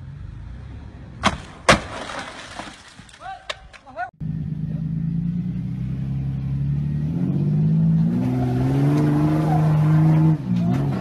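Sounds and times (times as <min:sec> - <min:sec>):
engine revving hard: 0:05.3 - 0:11.0.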